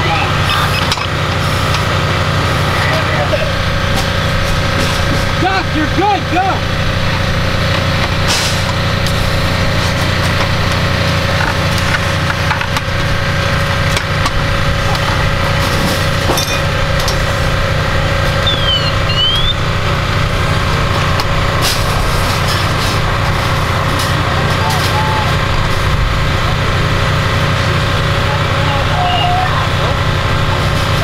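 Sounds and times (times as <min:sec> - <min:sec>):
engine drone: 0:00.0 - 0:31.0
high chirps: 0:18.4 - 0:19.7.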